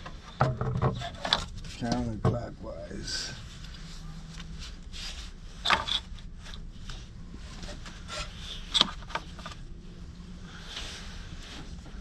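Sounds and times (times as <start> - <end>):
gloved hands rubbing and scraping: 3.3 - 12.0.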